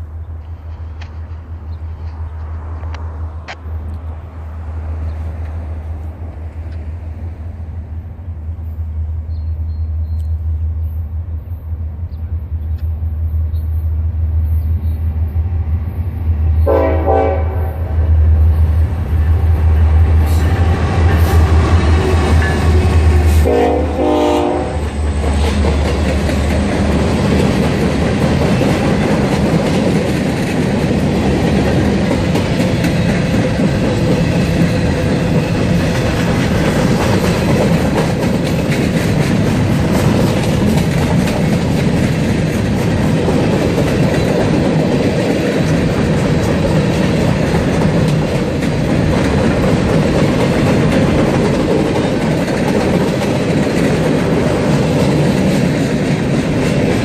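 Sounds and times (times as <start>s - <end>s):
diesel locomotive rumble: 0.0s - 57.0s
train horn: 16.6s - 18.0s, 20.3s - 25.0s.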